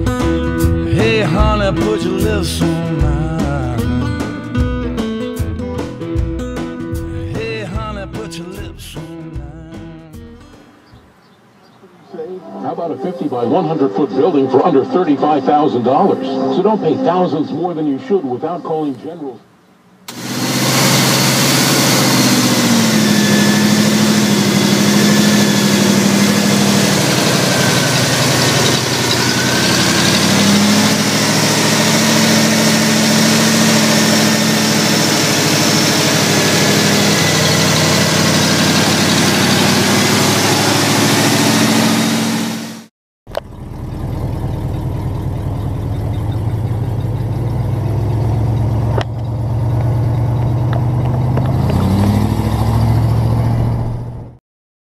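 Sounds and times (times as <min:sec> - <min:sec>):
truck engine driving: 0:00.0 - 0:54.4
truck engine idling: 0:19.5 - 0:54.1.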